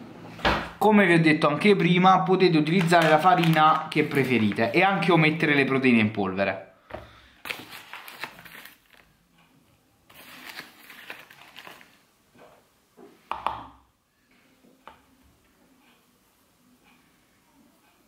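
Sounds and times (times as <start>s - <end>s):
packaging rustling: 2.6s - 5.8s, 7.4s - 9.1s, 10.1s - 12.0s.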